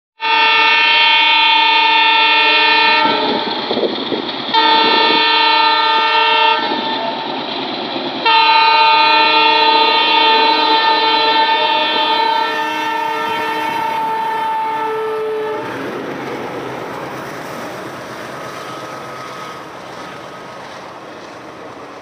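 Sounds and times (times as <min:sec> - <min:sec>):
locomotive horn blasts: 0:00.2 - 0:03.5, 0:04.5 - 0:07.2, 0:08.2 - 0:15.9
train wheels rumbling: 0:01.0 - 0:22.0
locomotive engine rumble: 0:02.1 - 0:22.0.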